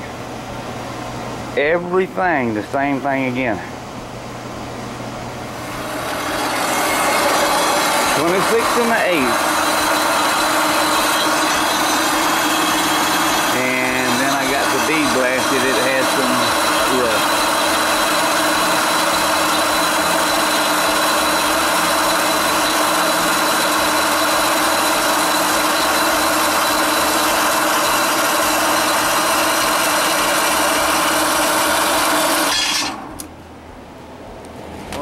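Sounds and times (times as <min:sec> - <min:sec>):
metal bandsaw cutting steel: 0:05.7 - 0:33.1.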